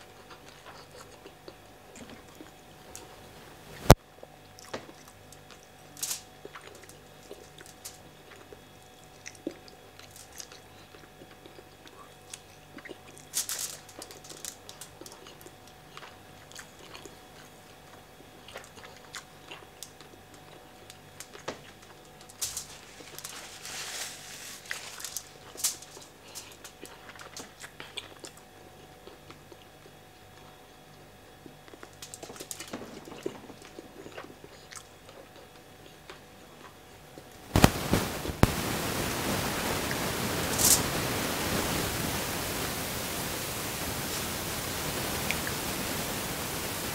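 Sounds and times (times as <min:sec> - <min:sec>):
person chewing food: 0:00.0 - 0:03.1, 0:04.2 - 0:13.3, 0:14.0 - 0:22.3, 0:25.4 - 0:32.5, 0:33.1 - 0:37.4.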